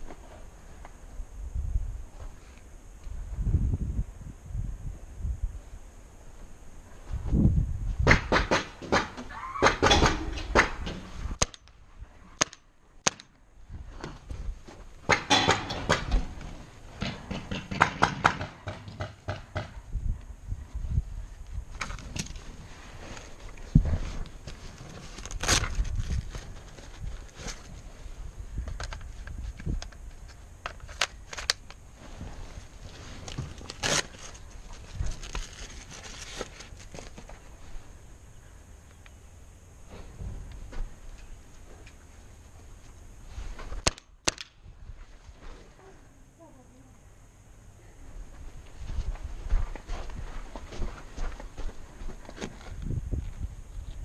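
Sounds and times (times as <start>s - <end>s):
sharp cracks: 8.0s - 11.8s, 12.4s - 13.4s, 43.7s - 44.7s
paintball gun pops: 11.4s - 11.7s, 12.4s - 13.3s, 43.8s - 44.6s
knocks and gear rattle: 15.1s - 19.6s
footsteps: 48.2s - 54.0s.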